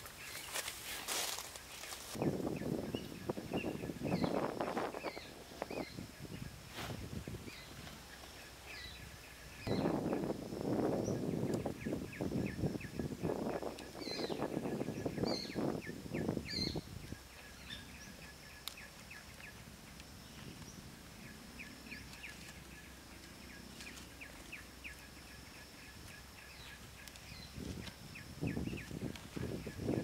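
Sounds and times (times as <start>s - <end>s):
dry leaves rustling: 0.0s - 2.8s, 18.7s - 30.0s.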